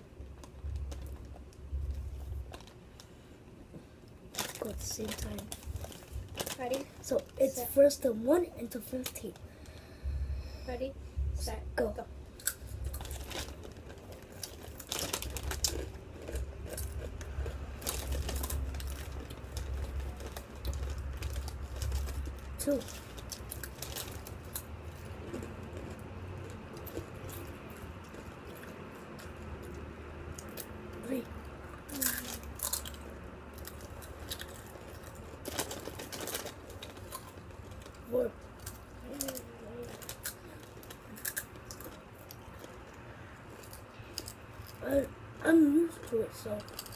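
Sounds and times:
chewing crunchy tortilla chips: 4.2 - 7.8, 12.4 - 44.9, 46.0 - 46.9.

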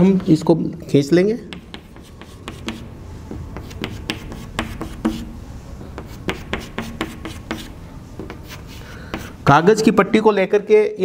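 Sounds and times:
chalk tapping on chalkboard: 0.0 - 0.5, 1.5 - 9.4.

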